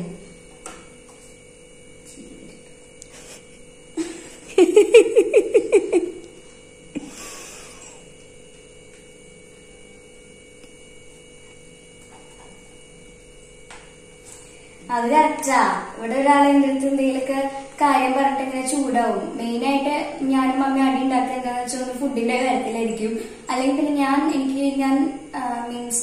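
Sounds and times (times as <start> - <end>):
faint steady hum: 0.0 - 26.0
girl giggling: 4.0 - 6.3.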